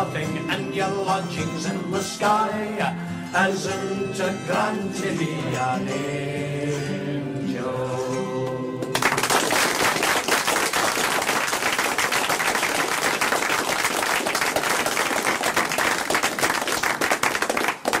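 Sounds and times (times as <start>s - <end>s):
audience applauding: 8.9s - 18.0s.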